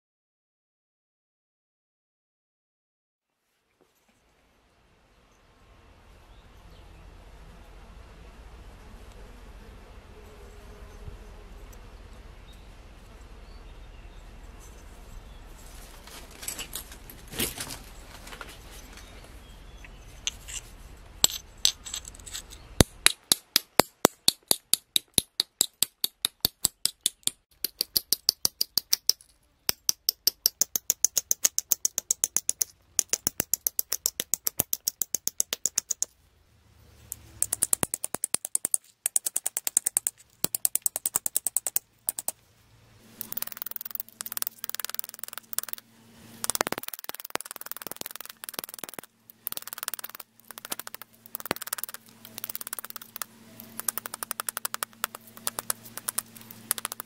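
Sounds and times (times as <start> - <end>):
stone tapping flint: 21.2 - 36.1, 37.1 - 42.4, 43.2 - 45.8, 46.4 - 57.0.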